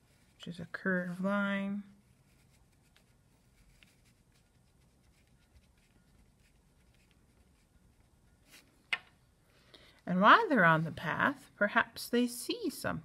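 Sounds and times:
pencil scratching on paper: 0.0 - 1.3, 2.0 - 8.6.

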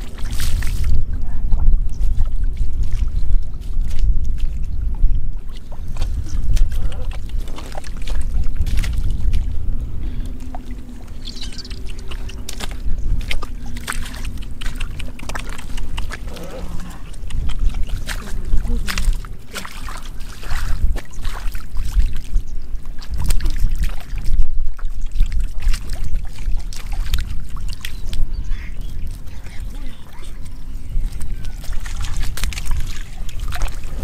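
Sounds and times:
splashing in muddy water: 0.0 - 34.0
steady low rumble: 0.0 - 34.0
rubber boots stepping in mud: 2.0 - 24.2, 29.1 - 34.0
fish splashing: 5.4 - 34.0.

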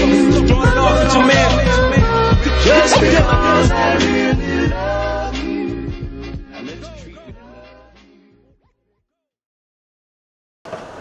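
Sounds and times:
background music: 0.0 - 8.6.

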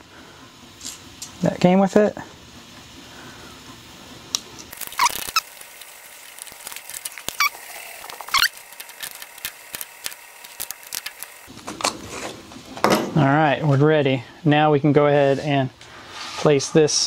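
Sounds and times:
brief squeaks: 4.9 - 5.4, 8.3 - 8.6.

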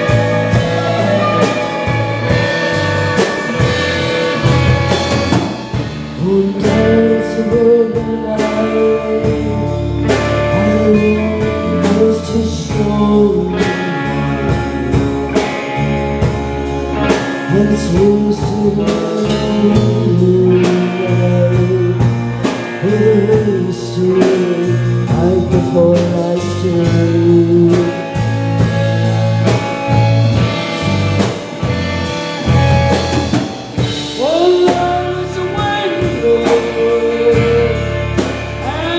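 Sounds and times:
woman singing: 0.0 - 4.5, 6.2 - 15.1, 17.4 - 28.3, 33.8 - 38.9
bass guitar: 0.0 - 38.9
drum kit: 0.0 - 38.9
electric guitars: 0.0 - 38.9.

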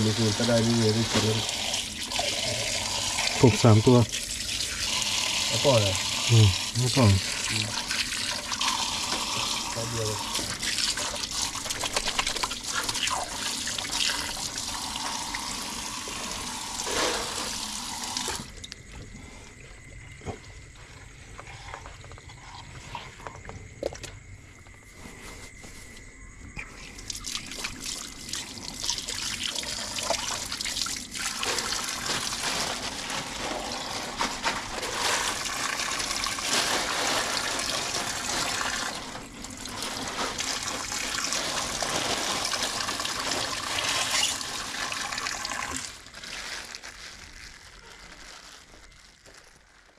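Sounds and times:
water trickling and splashing: 0.0 - 18.7, 26.9 - 46.5.

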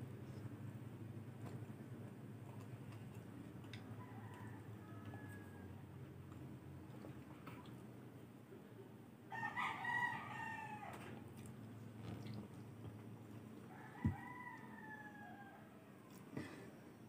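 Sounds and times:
rooster crowing: 4.0 - 5.8, 9.3 - 11.1, 13.7 - 16.0.

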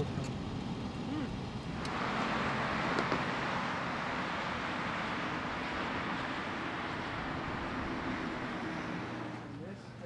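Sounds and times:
road traffic passing: 0.0 - 10.0.

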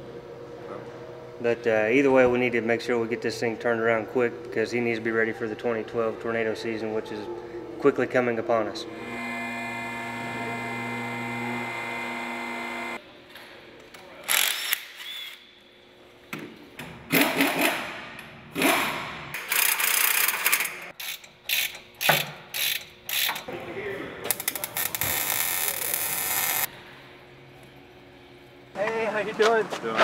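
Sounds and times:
steady hum: 0.0 - 13.2, 21.0 - 29.7
wrench ratcheting: 19.4 - 23.5.

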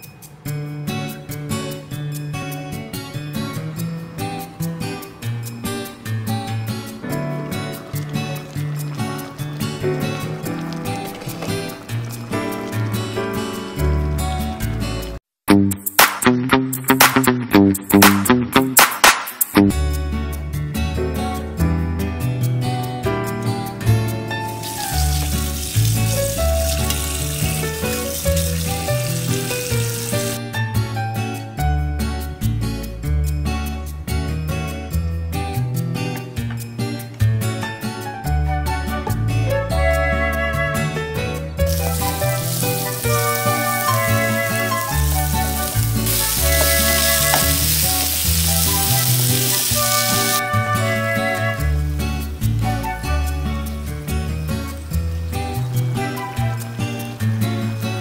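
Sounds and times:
background music: 0.0 - 58.0
tap water running in colander: 7.4 - 13.8, 24.6 - 30.4, 41.7 - 50.4
vegetables sizzling in oil: 7.6 - 13.8, 24.6 - 30.4, 41.7 - 50.4
shrimp rubbed by hand: 41.7 - 50.4.

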